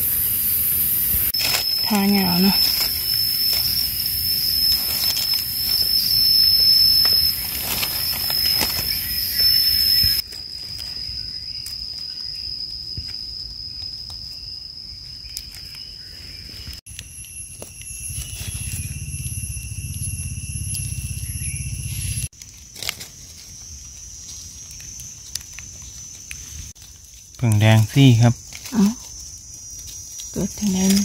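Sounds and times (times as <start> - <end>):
insects droning: 0.0 - 31.0
hands rustling dry leaves: 1.3 - 11.9.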